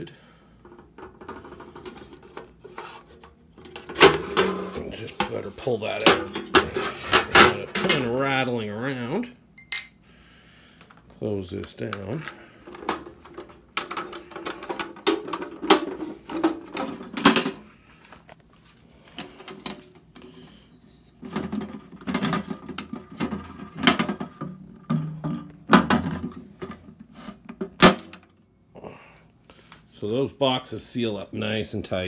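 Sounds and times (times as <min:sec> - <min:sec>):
metal box lid clanking: 0:03.6 - 0:08.1.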